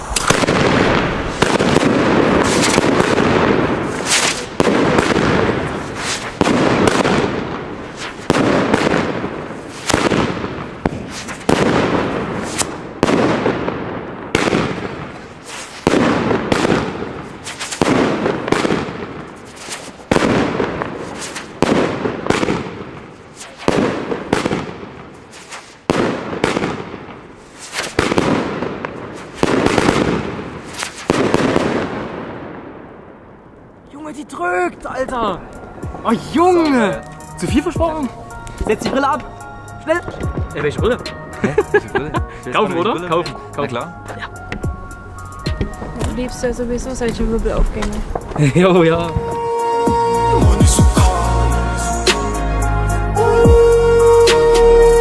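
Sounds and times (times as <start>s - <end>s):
firework bangs with hiss: 0.0s - 33.1s, 45.5s - 49.4s.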